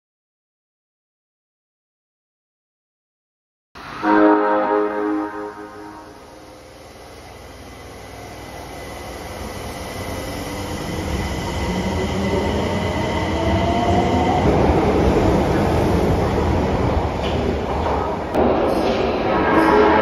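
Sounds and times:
subway train motor whine: 0:03.8 - 0:17.7
wheels rumbling on rail: 0:06.2 - 0:20.0.

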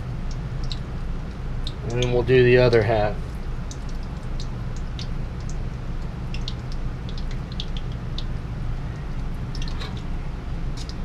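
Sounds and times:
donuts sizzling in hot oil: 0:00.0 - 0:11.0.

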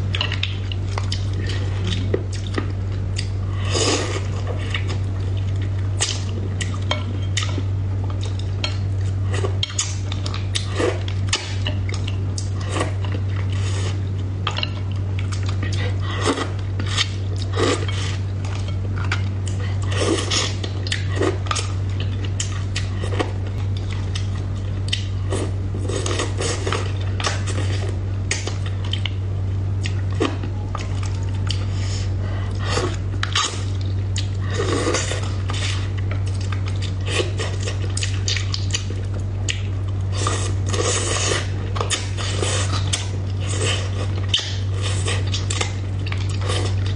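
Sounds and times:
low hum: 0:00.0 - 0:46.9
soft eating sounds: 0:00.0 - 0:46.9.

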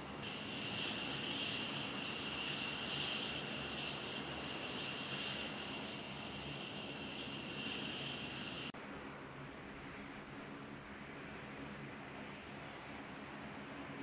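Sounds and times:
jet engines idling: 0:00.0 - 0:08.7.

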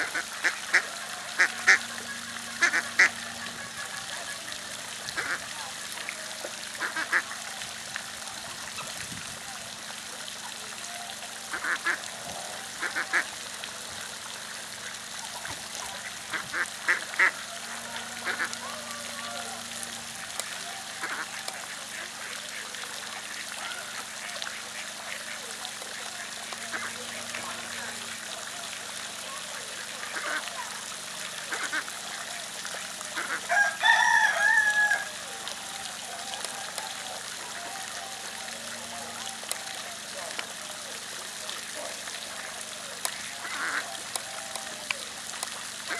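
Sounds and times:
duck quacking: 0:00.0 - 0:05.6, 0:06.8 - 0:07.4, 0:11.5 - 0:13.3, 0:15.8 - 0:22.6, 0:23.2 - 0:28.0, 0:29.8 - 0:30.6, 0:31.5 - 0:32.4, 0:33.1 - 0:33.6, 0:43.0 - 0:44.6.

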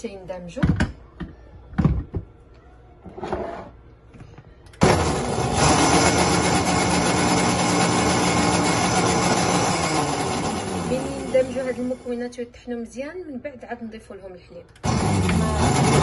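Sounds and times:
blender motor running: 0:04.8 - 0:11.9, 0:14.8 - 0:16.0.

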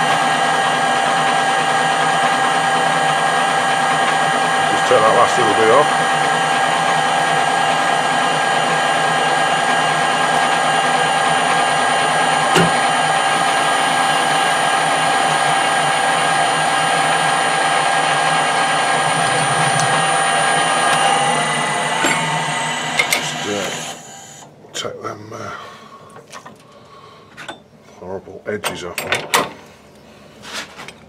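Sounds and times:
metal lathe whining: 0:00.0 - 0:24.5.

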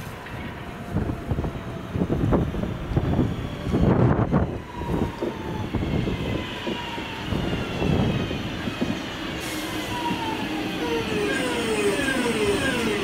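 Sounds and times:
train whine falling in pitch: 0:02.9 - 0:13.0.

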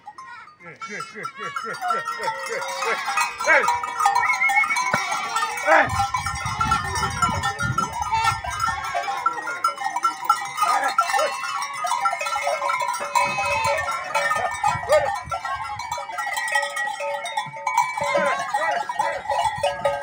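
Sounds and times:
goats bleating: 0:00.6 - 0:09.8, 0:10.6 - 0:15.6.

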